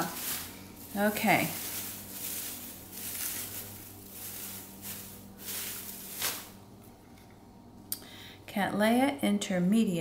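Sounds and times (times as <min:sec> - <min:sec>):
shredded paper rustling: 0:00.0 - 0:06.6.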